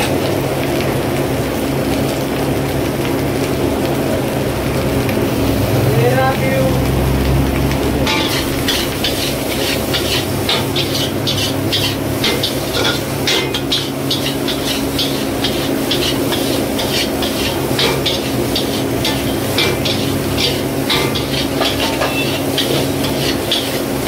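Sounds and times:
ladle scraping a wok: 0:08.1 - 0:24.0.

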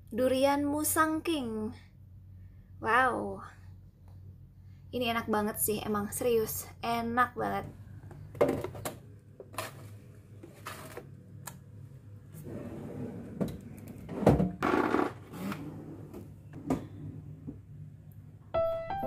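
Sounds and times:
steady low hum: 0:00.0 - 0:18.5.

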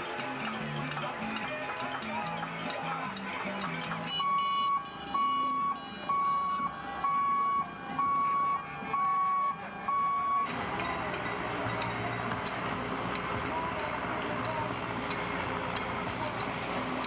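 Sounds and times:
electronic warning beeps: 0:00.2 - 0:13.4.

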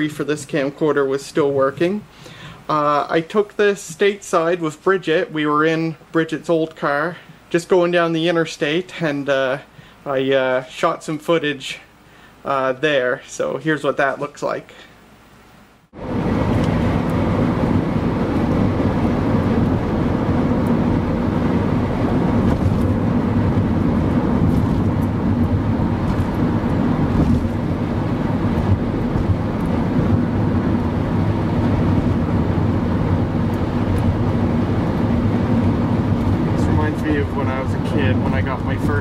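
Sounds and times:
car road and engine noise: 0:15.9 - 0:39.0.

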